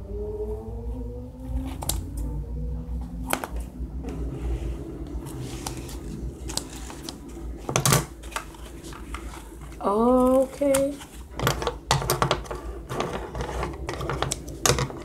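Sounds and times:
fabric and plastic rustling: 4.4s - 15.0s.

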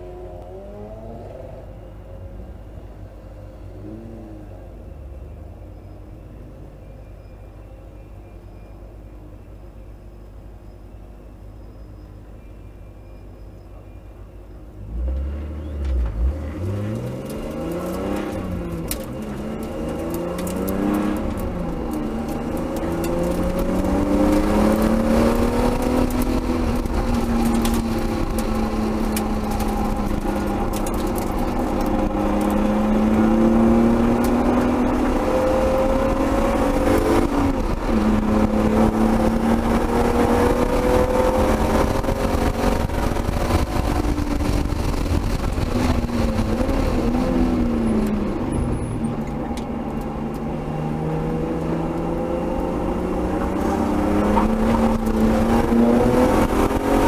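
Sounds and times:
car engine revving: 0.0s - 2.9s, 14.8s - 57.0s
road and wind noise: 0.0s - 57.0s.

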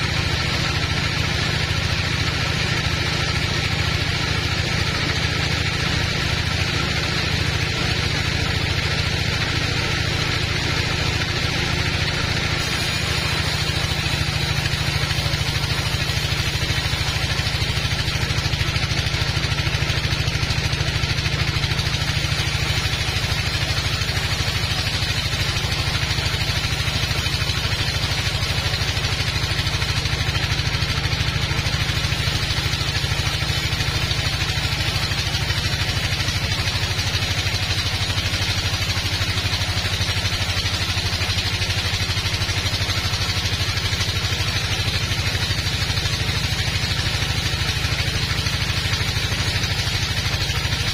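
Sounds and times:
band saw droning: 0.0s - 50.9s.

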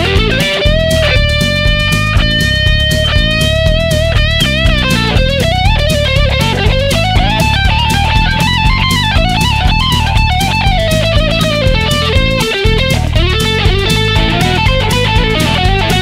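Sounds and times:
backing track with beat and bass: 0.0s - 16.0s
electric guitar lead: 0.0s - 16.0s.

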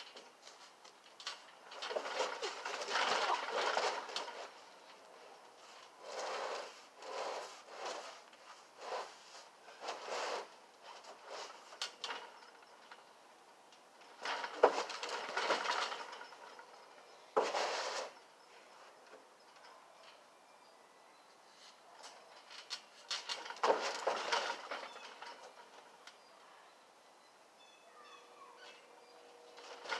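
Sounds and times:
feet and hands on trampoline: 0.0s - 13.1s, 14.0s - 19.6s, 21.6s - 26.0s.

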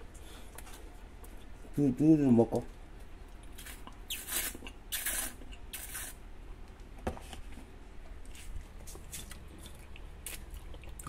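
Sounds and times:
slurping sips from carton: 3.6s - 6.2s.

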